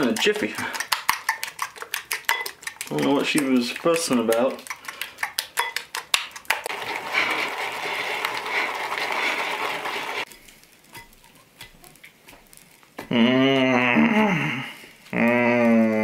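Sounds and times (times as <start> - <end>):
whisk beating in a bowl: 0.0 - 10.3
man moaning: 13.1 - 16.0.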